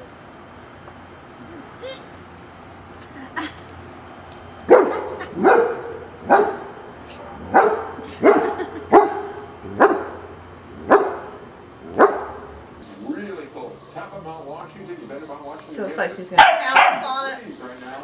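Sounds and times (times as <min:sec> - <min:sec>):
puppy barking: 0:04.7 - 0:06.8, 0:07.4 - 0:10.2, 0:10.8 - 0:11.4, 0:12.0 - 0:12.4, 0:16.4 - 0:17.2.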